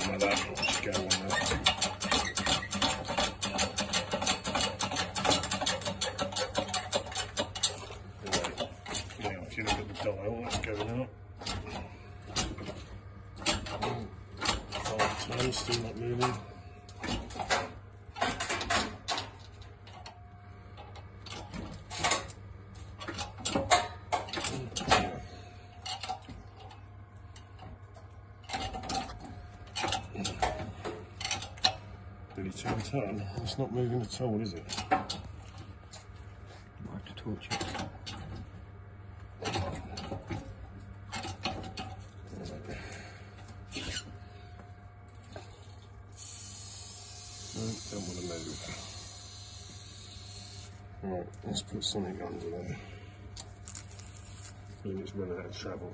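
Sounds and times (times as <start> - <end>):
hydraulic press clicking: 0.0 - 19.4
steady low hum: 0.0 - 55.9.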